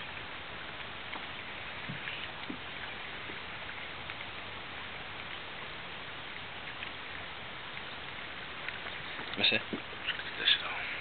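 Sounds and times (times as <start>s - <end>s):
water on a lake: 0.0s - 11.0s
wind: 0.0s - 11.0s
faint small clicks: 8.6s - 10.4s.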